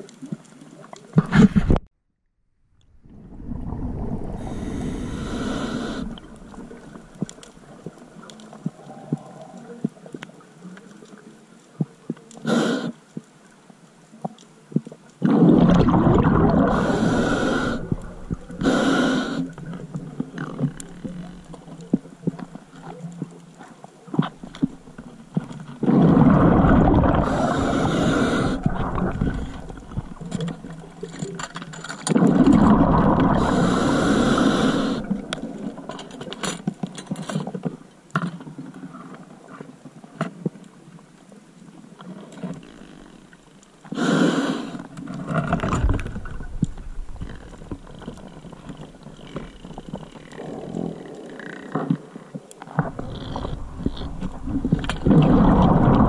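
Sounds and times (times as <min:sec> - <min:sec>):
diver's exhaled bubbles surging: 0:03.0 - 0:07.2, 0:15.2 - 0:19.4, 0:25.8 - 0:31.1, 0:32.2 - 0:35.8, 0:52.9 - 0:56.0
faint clicks: 0:06.0 - 0:15.2, 0:19.3 - 0:25.8.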